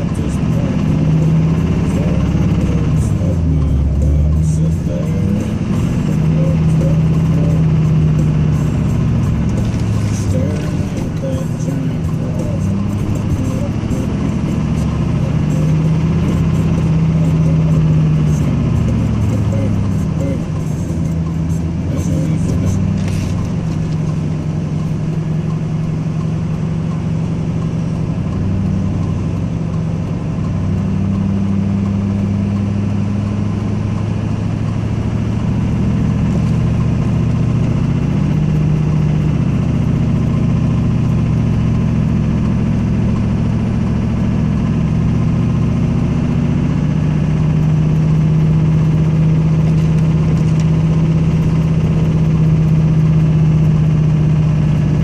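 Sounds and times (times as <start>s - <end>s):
diesel engine droning under load: 0.0s - 55.0s.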